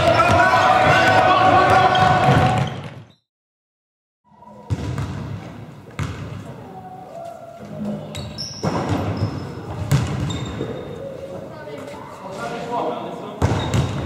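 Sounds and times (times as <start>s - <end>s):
basketball bouncing on floor: 6.0s - 6.4s, 8.6s - 10.6s.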